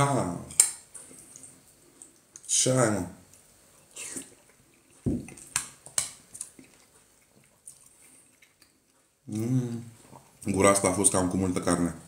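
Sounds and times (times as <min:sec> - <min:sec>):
dull knock: 0:05.1 - 0:05.3.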